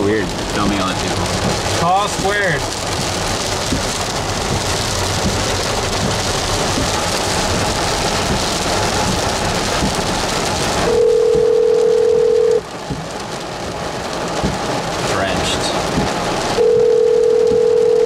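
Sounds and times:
telephone ringback tone: 10.9s - 12.6s, 16.6s - 18.0s.

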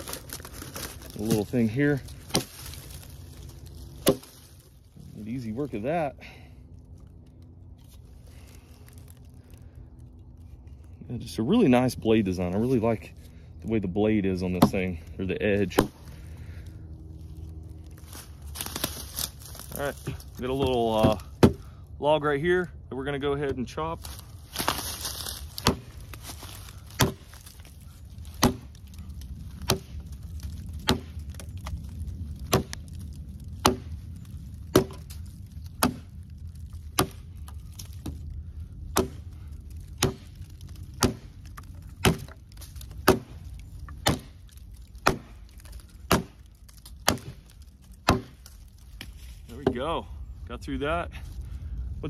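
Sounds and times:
hatchet chopping wood: 2.2s - 2.8s, 4.0s - 4.3s, 14.4s - 15.0s, 15.6s - 16.1s, 20.6s - 21.7s, 25.4s - 26.1s, 26.8s - 27.5s, 28.3s - 28.8s, 29.6s - 30.0s, 30.8s - 31.7s, 32.4s - 33.0s, 33.6s - 34.0s, 34.7s - 35.2s, 35.8s - 36.1s, 36.9s - 38.2s, 38.9s - 49.8s.

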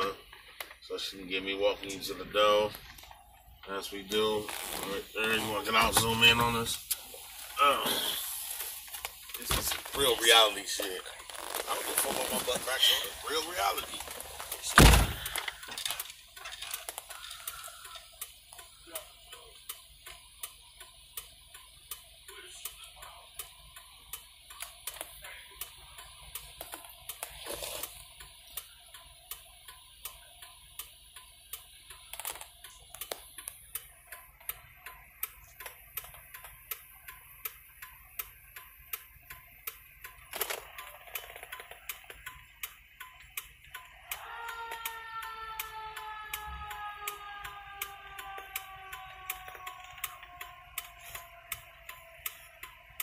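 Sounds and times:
loud thump: 14.7s - 15.2s.

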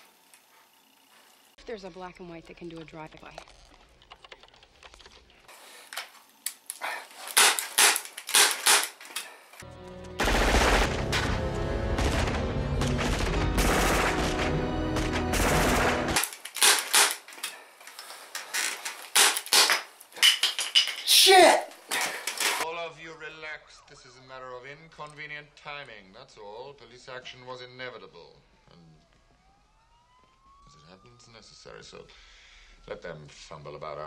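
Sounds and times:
rapid automatic gunfire: 10.2s - 11.4s, 12.0s - 17.2s
gunshots: 10.2s - 17.2s.

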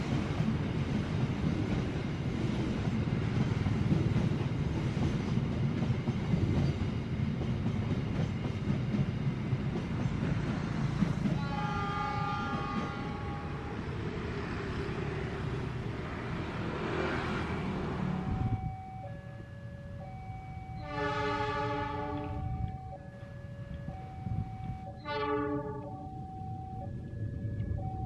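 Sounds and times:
train carriages rumbling on rails: 0.0s - 18.6s
train horn chord: 11.4s - 13.9s, 20.8s - 22.7s, 24.9s - 26.1s.

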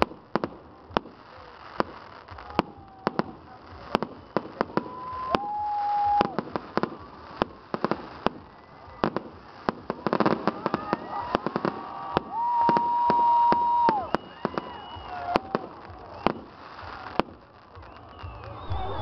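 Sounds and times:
fireworks bangs and pops: 0.0s - 19.0s
long whistling tones: 2.7s - 7.5s, 10.6s - 17.1s, 17.7s - 19.0s.

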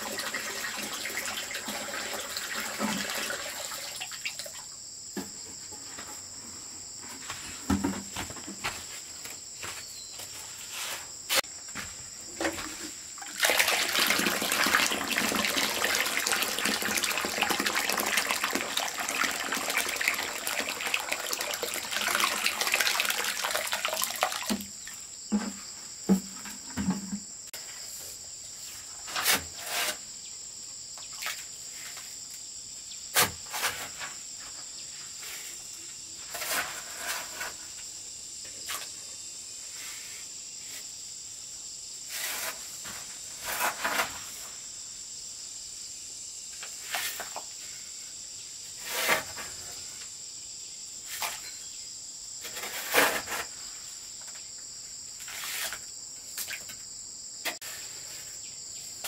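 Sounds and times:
knocks and scrapes of hand work: 5.1s - 13.1s, 25.3s - 27.8s, 28.7s - 30.1s, 33.1s - 35.6s, 36.2s - 37.9s, 42.1s - 44.5s, 48.8s - 50.0s, 51.1s - 51.7s, 52.4s - 54.4s, 55.2s - 56.8s, 57.4s - 58.4s.

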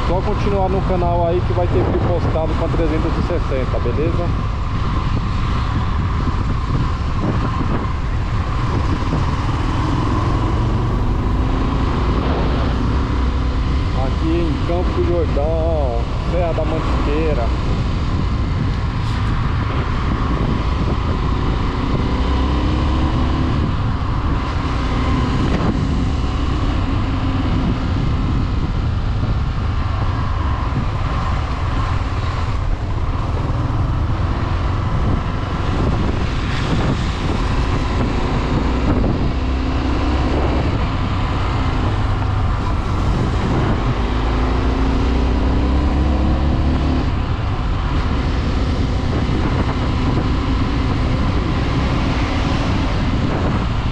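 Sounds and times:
wind and road noise: 0.0s - 53.9s.

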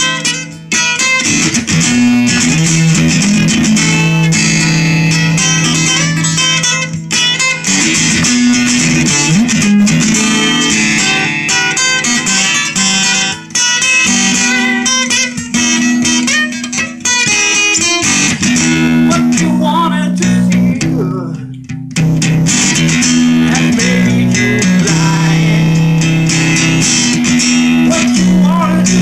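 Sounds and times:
acoustic guitar strumming chords: 0.0s - 29.0s.

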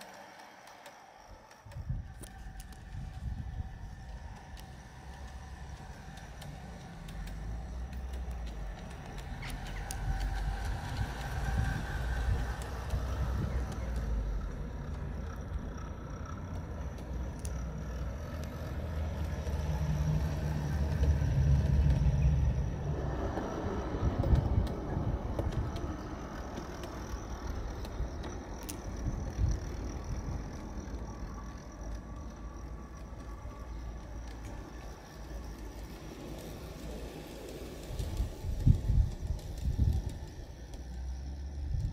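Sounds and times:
track clicks: 0.0s - 19.6s
model train wheels rumbling on rails: 0.0s - 41.9s.

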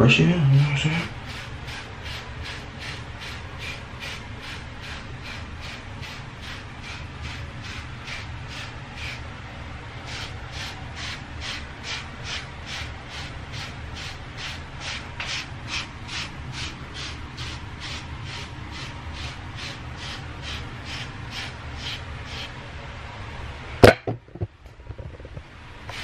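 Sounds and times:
steady low hum: 0.0s - 26.0s
hairbrush scraping through hair: 0.8s - 9.2s, 10.1s - 22.6s.

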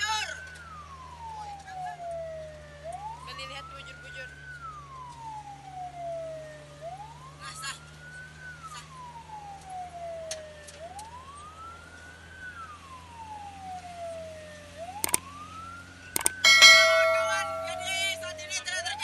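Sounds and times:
emergency siren wailing: 0.0s - 19.0s
loud steady blaring tone: 16.2s - 18.5s.

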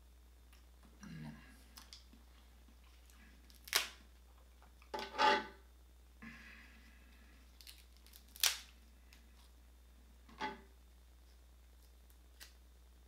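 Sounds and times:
crab shell cracking: 3.5s - 4.0s, 7.6s - 8.8s.

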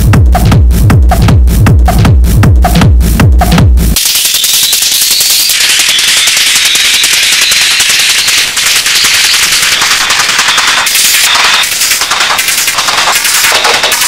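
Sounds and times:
rapid crackling techno rattle: 0.0s - 14.0s.

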